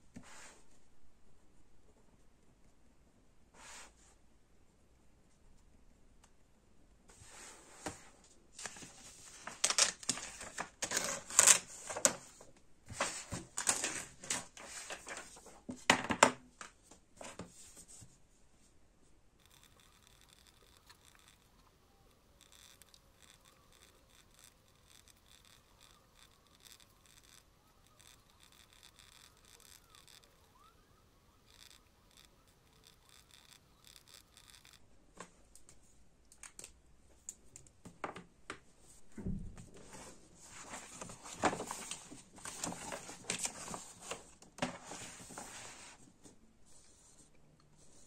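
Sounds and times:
pen scratching on paper: 19.4s - 21.6s, 22.4s - 30.5s, 31.4s - 34.8s.

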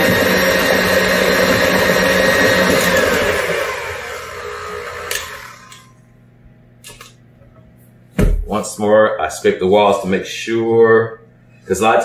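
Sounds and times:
stand mixer motor hum: 0.0s - 5.9s.

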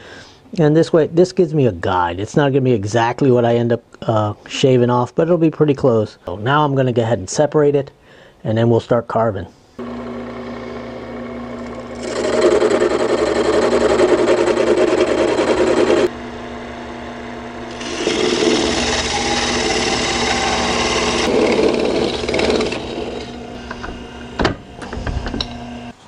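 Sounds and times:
hand saw cutting wood: 11.6s - 16.1s, 17.7s - 24.2s.

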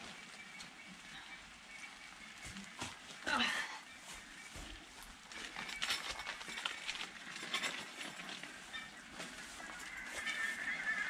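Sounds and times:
footsteps on wet grass: 1.8s - 11.0s
bird calling: 8.5s - 11.0s.

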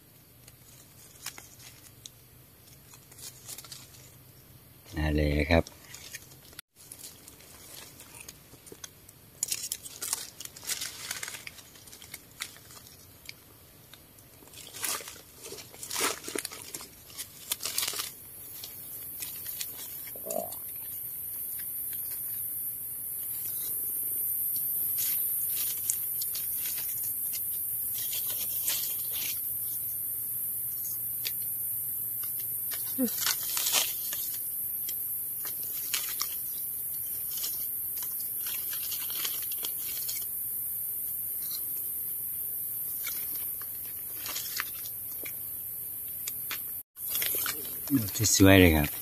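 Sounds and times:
leaf litter crunching and rustling: 0.4s - 4.2s, 5.0s - 22.4s, 23.2s - 29.8s, 32.2s - 40.6s, 42.7s - 49.0s
high-pitched insect buzz: 17.6s - 49.0s.

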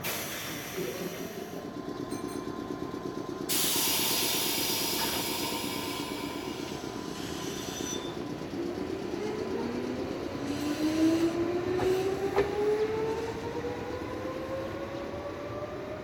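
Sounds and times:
loud air hiss: 0.0s - 1.6s, 3.5s - 7.8s
train running gear: 0.0s - 15.8s.

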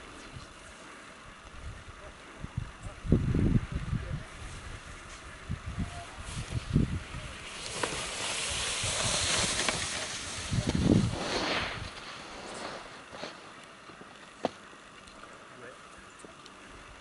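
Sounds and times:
skis scraping over snow: 6.1s - 14.6s.

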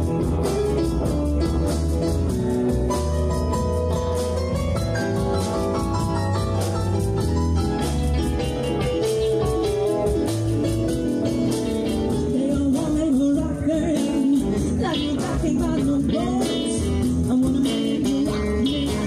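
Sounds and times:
drums: 0.0s - 19.0s
electric guitar: 0.0s - 19.0s
woman singing: 12.2s - 19.0s.

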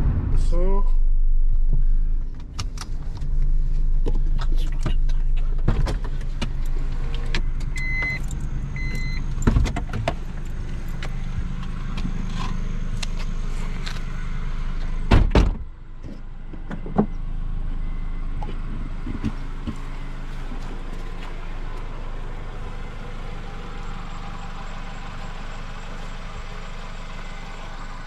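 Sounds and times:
car engine running: 0.0s - 28.0s
car door slamming: 15.1s - 15.7s.

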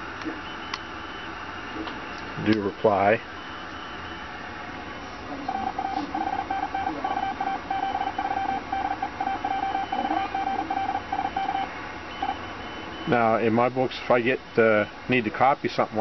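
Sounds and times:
morse code tone: 5.5s - 13.2s.

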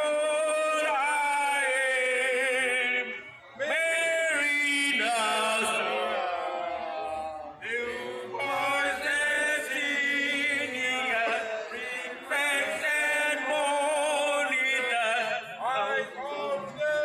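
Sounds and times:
men singing in unison: 0.0s - 6.4s, 7.6s - 17.0s.

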